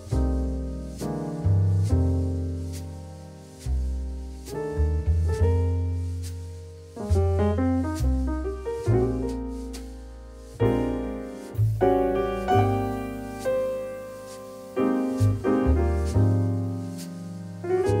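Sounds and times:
piano chords: 6.8s - 18.0s.

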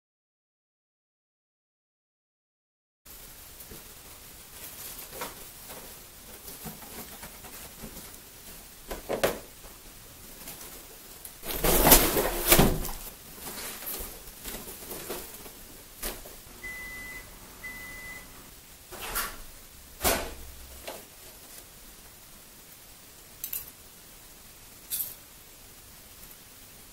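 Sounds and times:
balloon rustling: 10.2s - 16.2s
short high beeps: 16.6s - 18.4s.

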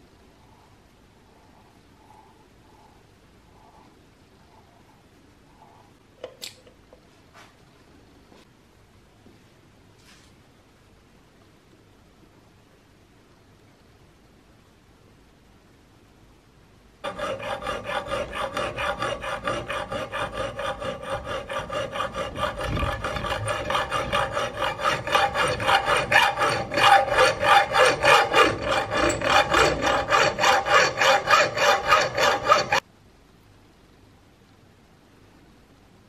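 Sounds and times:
hacksaw cutting metal tube: 17.0s - 32.8s.

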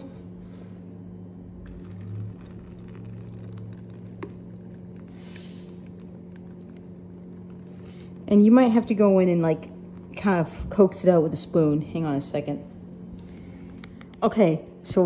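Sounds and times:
water and pasta dribbling into colander: 1.6s - 10.4s.

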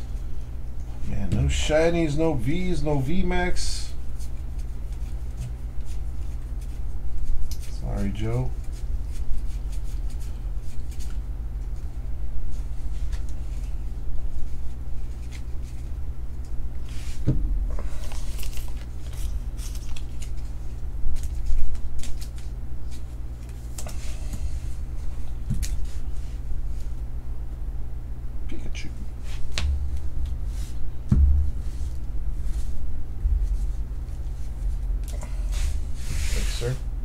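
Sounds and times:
steady low hum: 0.0s - 37.0s
cards clicking and rustling: 18.0s - 24.0s.

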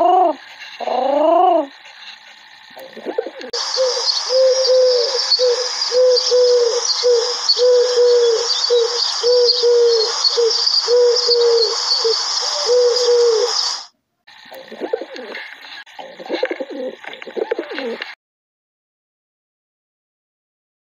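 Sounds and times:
dove cooing: 0.0s - 2.0s, 2.8s - 13.9s, 14.6s - 18.2s
small birds chirping faintly: 0.0s - 18.2s.

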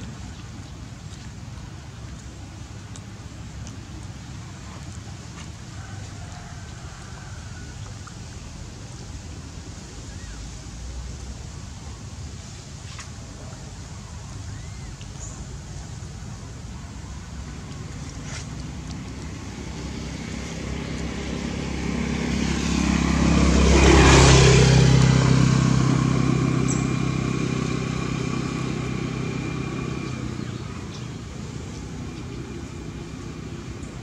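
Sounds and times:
vehicle passing by: 15.6s - 34.0s.

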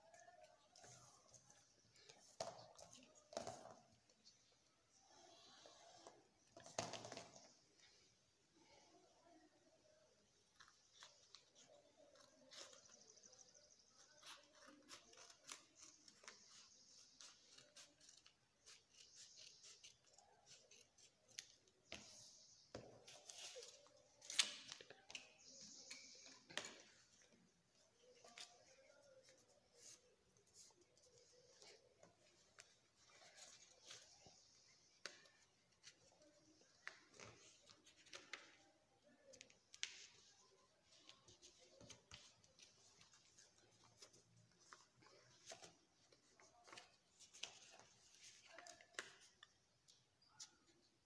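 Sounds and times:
paper rustling and crinkling: 10.5s - 22.4s, 23.0s - 49.5s.

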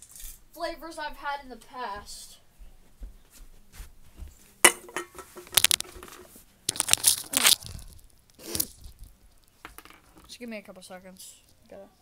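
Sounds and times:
crinkly rustling: 5.3s - 9.6s.

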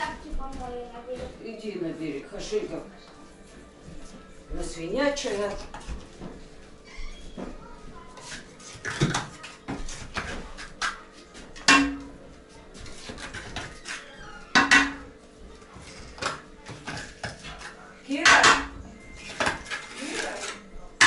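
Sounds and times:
metal items knocking and scraping: 12.8s - 15.1s.

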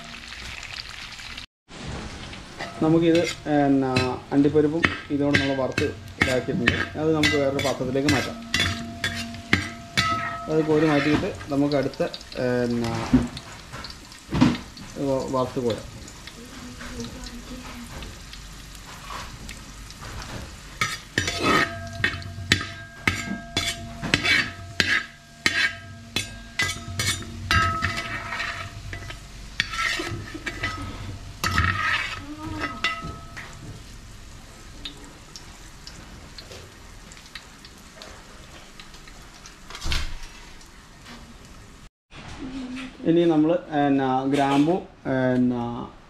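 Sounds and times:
low sizzle: 0.0s - 42.5s
metal ladle scraping a pan: 1.8s - 14.6s, 18.7s - 33.7s
pan ringing: 2.5s - 12.0s, 21.3s - 29.2s, 32.3s - 33.8s.

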